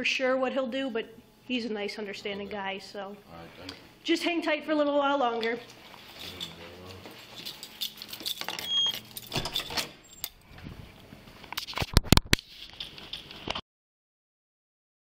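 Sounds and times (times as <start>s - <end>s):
keys and gear jingling: 6.1s - 6.6s, 7.2s - 10.3s.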